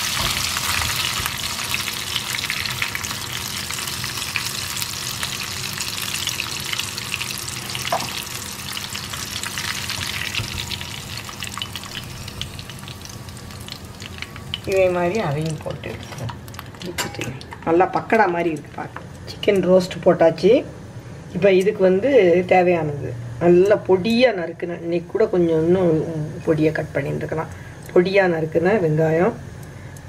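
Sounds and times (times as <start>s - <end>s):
chicken deep-frying in oil: 0.0s - 17.2s.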